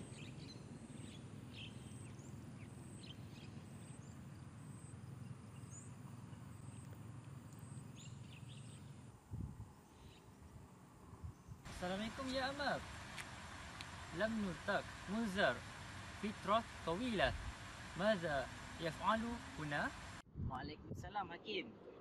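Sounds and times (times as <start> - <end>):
wind rumble on microphone: 9.2 - 9.8, 11.1 - 11.7, 20.2 - 22.0
faint bird chirps: 9.8 - 10.6.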